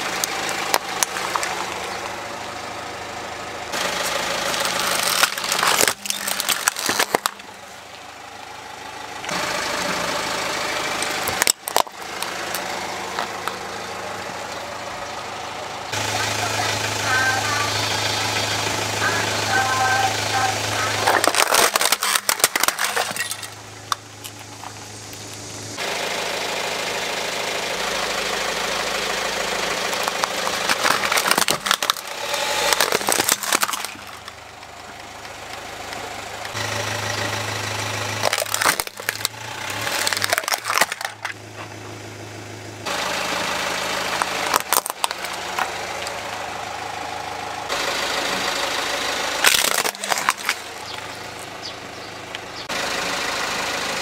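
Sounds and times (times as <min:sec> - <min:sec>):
plastic toys cracking under tyre: 0:00.0 - 0:02.2, 0:03.8 - 0:07.6, 0:10.9 - 0:13.7, 0:21.0 - 0:25.4, 0:29.6 - 0:34.5, 0:38.1 - 0:41.4, 0:44.1 - 0:46.4, 0:49.4 - 0:51.6
car engine idling: 0:00.0 - 0:54.0.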